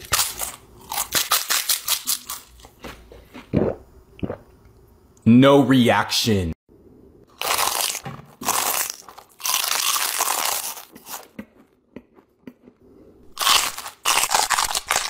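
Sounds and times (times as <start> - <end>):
tortilla chips crunching: 0.0 - 3.0, 7.4 - 11.6, 13.3 - 15.0.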